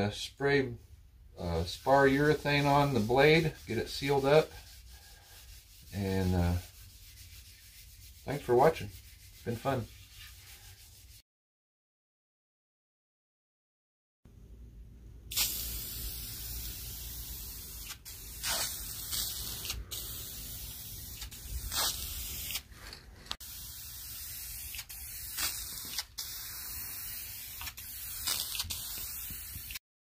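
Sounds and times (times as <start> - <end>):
aerosol can spraying hiss: 15.3 - 22.6, 23.4 - 29.8.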